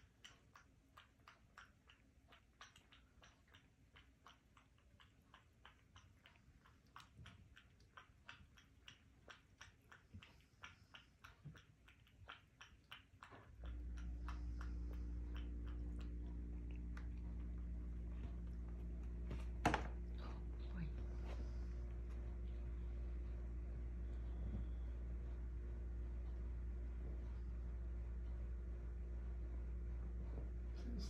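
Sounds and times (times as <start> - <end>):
cat lapping water: 0.0 - 24.8
loud steady low hum: 13.6 - 31.0.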